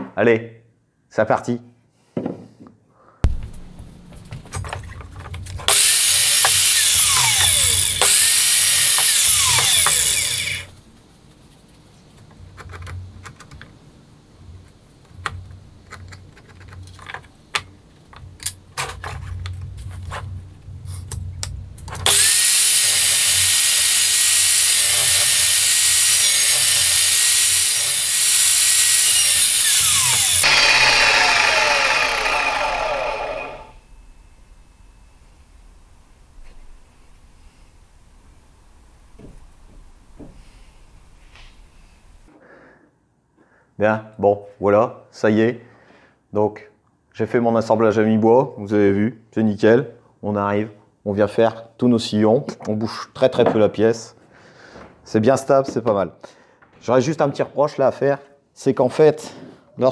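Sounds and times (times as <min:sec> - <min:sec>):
mitre saw cutting wood: 0:05.7 - 0:10.7, 0:22.0 - 0:33.8.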